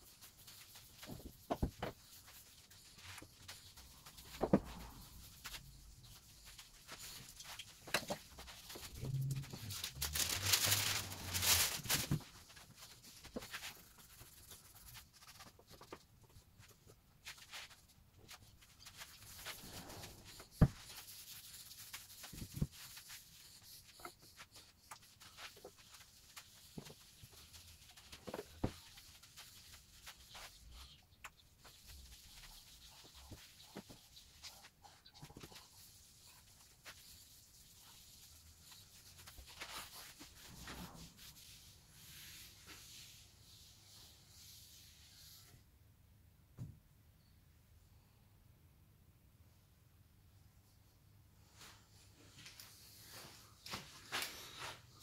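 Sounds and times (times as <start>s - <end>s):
scratchy rustle: 0.0s - 15.8s, 17.2s - 43.7s.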